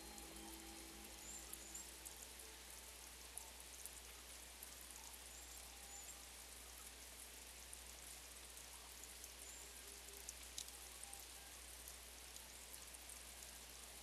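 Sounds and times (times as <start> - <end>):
low steady hum: 0.0 - 4.7
light rain with ticking drops: 0.0 - 14.0.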